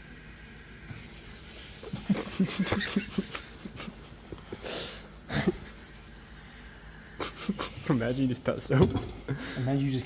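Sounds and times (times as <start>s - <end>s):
man laughing: 1.9s - 4.6s.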